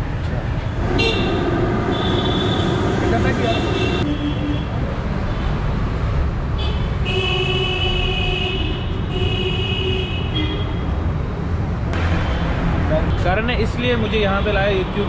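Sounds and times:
street traffic rumble: 0:00.0 - 0:15.0
vehicle horn: 0:00.9 - 0:04.7.

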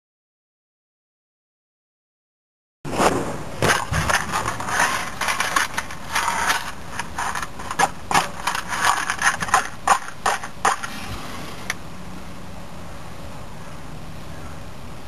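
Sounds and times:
rummaging in cardboard box: 0:03.6 - 0:10.9.

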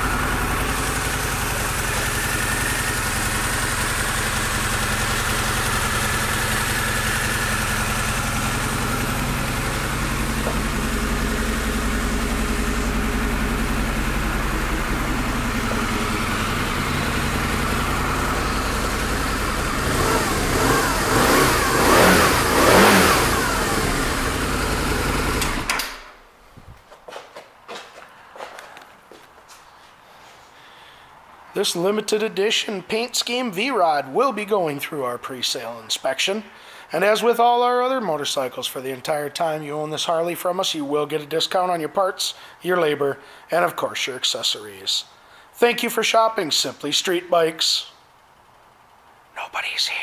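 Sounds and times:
motorcycle engine idling and revving: 0:00.0 - 0:26.1.

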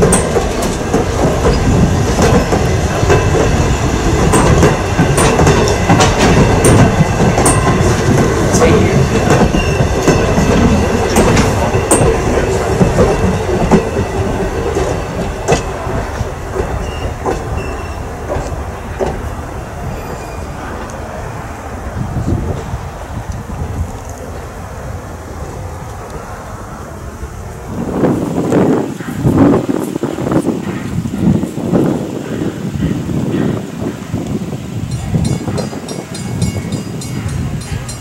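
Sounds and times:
train wheels clacking over rail joints: 0:00.0 - 0:21.0, 0:34.9 - 0:38.0
high flange squeals: 0:16.8 - 0:18.2, 0:19.8 - 0:20.8.

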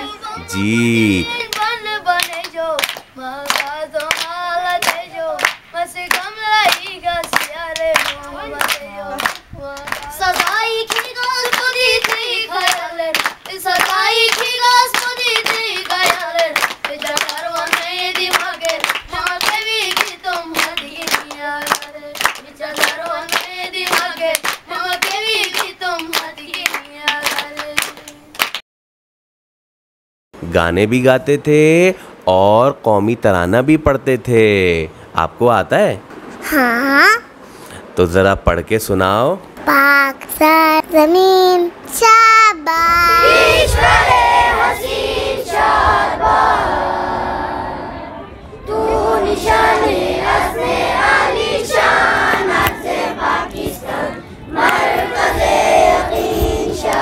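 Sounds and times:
boy singing a ballad: 0:00.0 - 0:16.6, 0:39.6 - 0:43.8
hand claps: 0:01.5 - 0:28.6.

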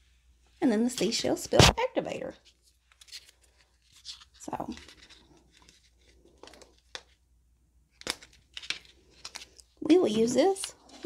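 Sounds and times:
plastic pouch crinkling: 0:02.4 - 0:07.2, 0:07.9 - 0:11.0.

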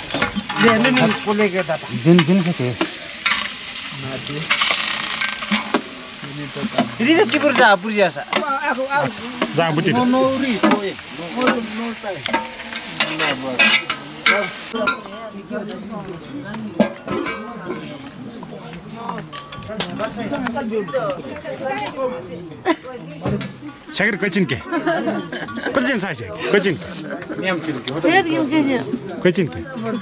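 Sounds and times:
meat sizzling in a pot: 0:00.0 - 0:15.1
metal ladle clinking against pot: 0:10.6 - 0:15.3, 0:16.3 - 0:17.8.

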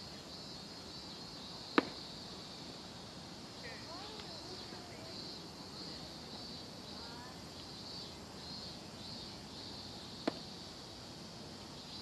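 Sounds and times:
insects chorus: 0:00.0 - 0:12.0
sharp knock: 0:01.8 - 0:02.0.

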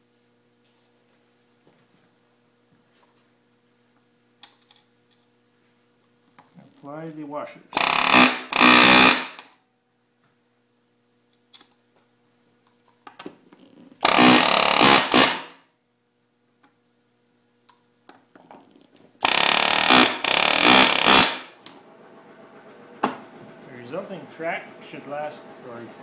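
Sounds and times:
riveting tool pounding rivets: 0:07.8 - 0:09.5, 0:14.0 - 0:15.6, 0:19.2 - 0:21.7.

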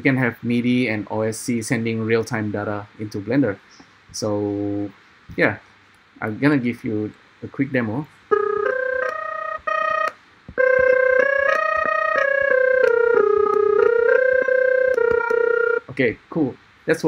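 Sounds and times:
synthesizer melody: 0:08.3 - 0:15.9
small clicks at note changes: 0:08.3 - 0:16.0.

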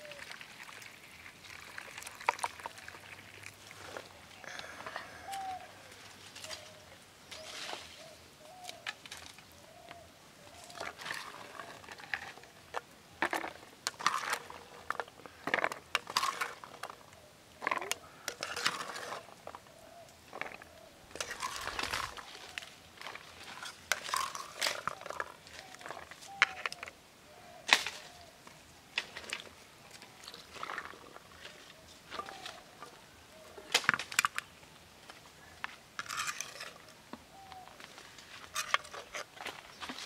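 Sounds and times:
dove cooing: 0:00.0 - 0:00.3, 0:03.9 - 0:08.9, 0:24.4 - 0:28.4, 0:31.4 - 0:33.7, 0:37.3 - 0:38.7
small water splashes: 0:00.1 - 0:03.8.

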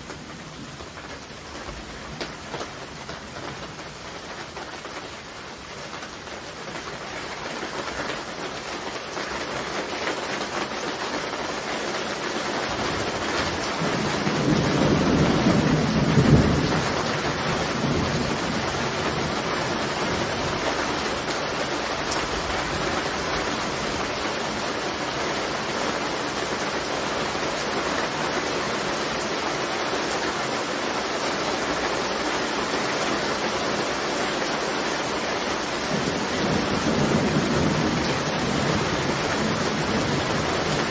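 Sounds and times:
steady rain falling: 0:00.0 - 0:40.9
thunder rumbling: 0:12.8 - 0:21.3, 0:35.5 - 0:40.9.

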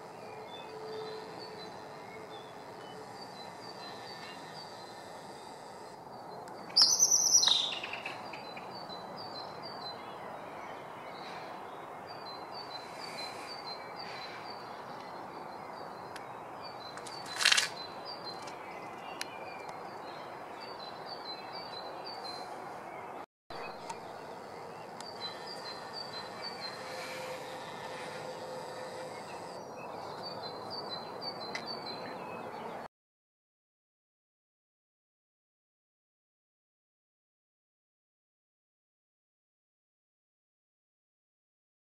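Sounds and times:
insects chirping in trills: 0:00.0 - 0:09.9, 0:23.7 - 0:31.2.

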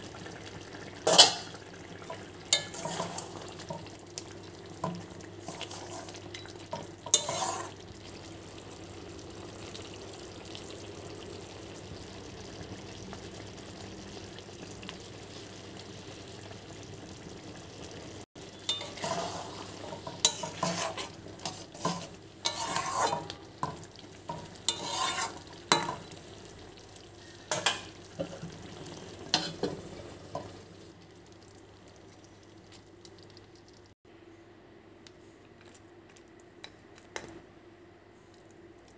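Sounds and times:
frying sizzle: 0:00.0 - 0:34.0
spatula scraping in metal pan: 0:02.5 - 0:03.7, 0:04.8 - 0:07.8, 0:18.6 - 0:26.2, 0:29.3 - 0:29.8.

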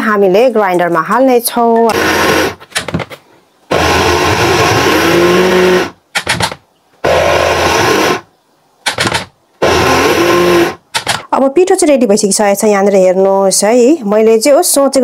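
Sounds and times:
electric grinder grinding rice: 0:01.9 - 0:02.6, 0:03.7 - 0:06.0, 0:07.0 - 0:08.3, 0:09.6 - 0:10.8.

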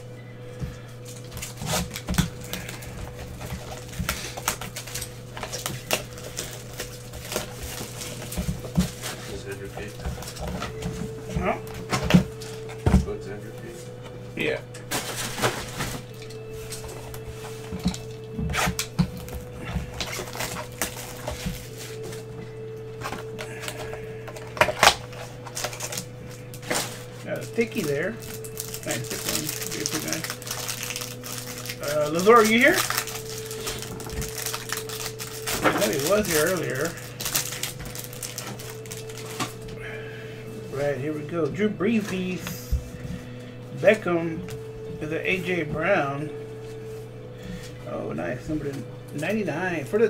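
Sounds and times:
low hum: 0:00.0 - 0:50.0
cardboard box crackling and tearing: 0:01.1 - 0:10.7, 0:18.0 - 0:22.1, 0:23.1 - 0:39.6.

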